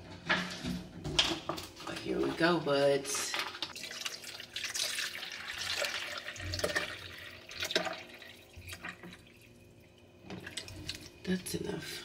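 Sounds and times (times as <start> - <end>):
water pouring into reservoir: 3.6 - 11.3.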